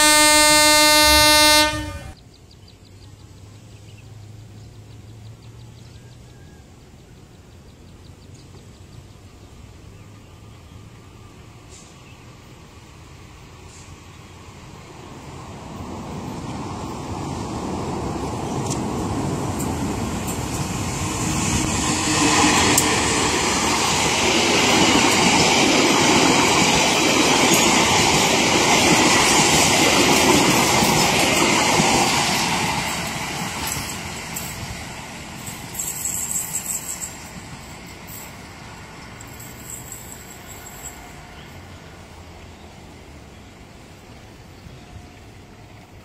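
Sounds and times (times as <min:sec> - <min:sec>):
locomotive engine passing: 0:00.0 - 0:02.2, 0:14.0 - 0:46.0
train wheels running on rails: 0:10.2 - 0:46.0.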